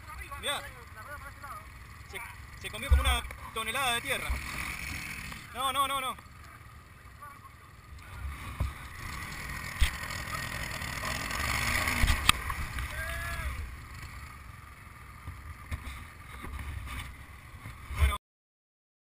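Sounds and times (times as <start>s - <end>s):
atv engines running: 0.0s - 18.2s.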